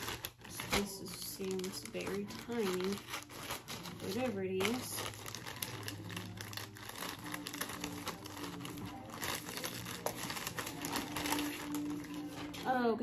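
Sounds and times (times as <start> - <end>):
plastic mailer bag crinkling: 0.0 - 12.8.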